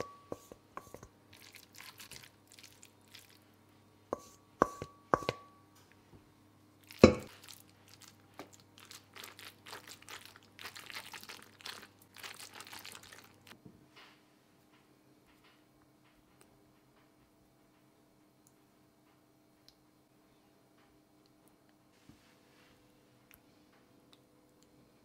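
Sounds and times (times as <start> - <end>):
spatula squishing and scraping pasta: 0.0 - 3.5, 4.2 - 5.3, 6.8 - 13.6
spatula knocking on metal bowl: 4.2 - 5.6.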